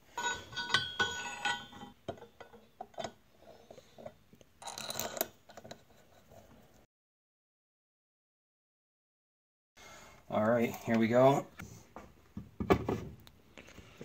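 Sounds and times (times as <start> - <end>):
metal scraping rattle: 0.0 - 2.0.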